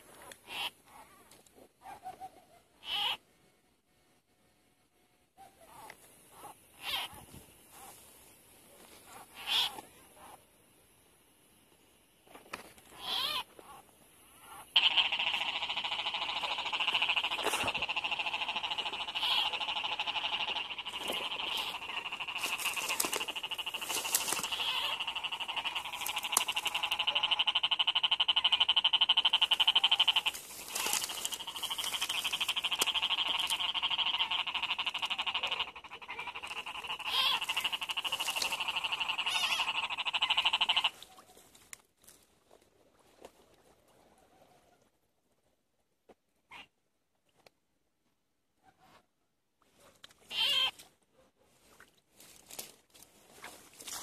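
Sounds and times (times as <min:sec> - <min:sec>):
frogs calling in chorus: 0:00.0 - 0:01.1, 0:02.8 - 0:03.2, 0:05.6 - 0:08.1, 0:09.1 - 0:10.4, 0:12.8 - 0:41.2, 0:50.3 - 0:50.8.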